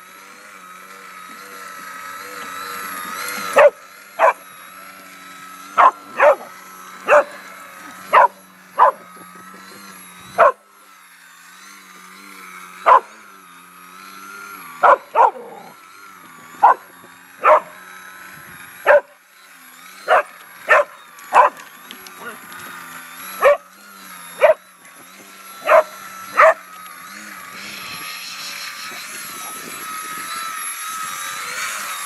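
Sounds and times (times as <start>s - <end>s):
model plane motor droning: 0.0s - 32.0s
dog barking: 3.6s - 4.4s, 5.8s - 6.5s, 7.1s - 7.4s, 8.1s - 9.0s, 10.4s - 10.6s, 12.9s - 13.1s, 14.8s - 15.7s, 16.6s - 16.8s, 17.4s - 17.8s, 18.9s - 19.1s, 20.1s - 21.6s, 23.4s - 23.6s, 24.4s - 24.6s, 25.6s - 26.6s.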